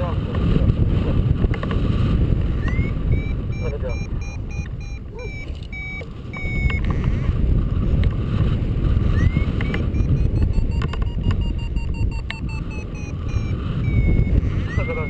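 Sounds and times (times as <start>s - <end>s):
wind rushing over microphone: 0.0s - 15.0s
variometer high beeps: 2.6s - 7.3s, 9.0s - 15.0s.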